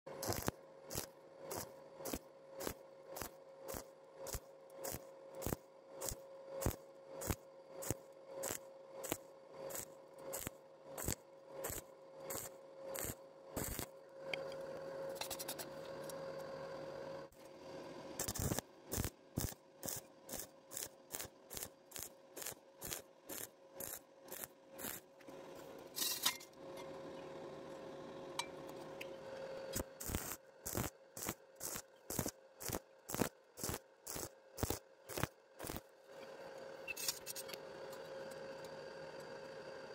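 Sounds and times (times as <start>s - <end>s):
welding arc crackling: 0.1s - 13.9s, 18.2s - 25.1s, 29.7s - 35.9s.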